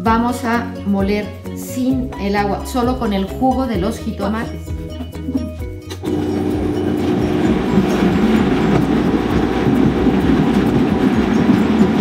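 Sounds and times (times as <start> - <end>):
blender grinding tomatoes: 6.0 - 12.0.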